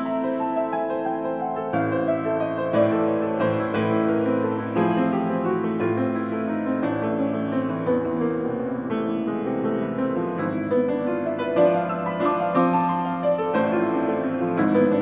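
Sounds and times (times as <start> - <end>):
grand piano playing: 0.0 - 15.0.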